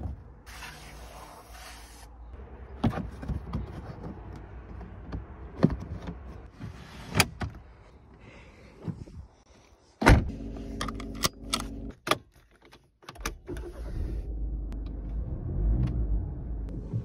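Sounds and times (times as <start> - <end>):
diesel engine starting and idling: 13.3 - 17.0.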